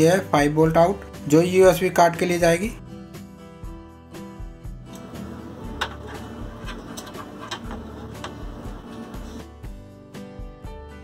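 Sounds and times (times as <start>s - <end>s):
background music with low beat: 0.4s - 11.0s
clicks in metal cabinet: 5.7s - 8.4s.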